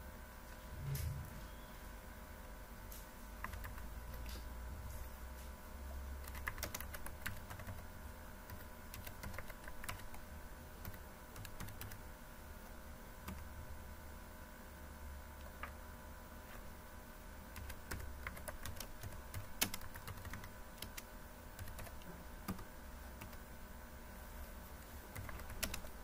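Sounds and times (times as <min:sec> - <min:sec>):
faint low hum: 0:00.0 - 0:26.0
computer keyboard typing: 0:03.4 - 0:04.6, 0:06.1 - 0:12.1, 0:13.2 - 0:13.6, 0:15.4 - 0:15.8, 0:17.5 - 0:23.5, 0:25.1 - 0:26.0.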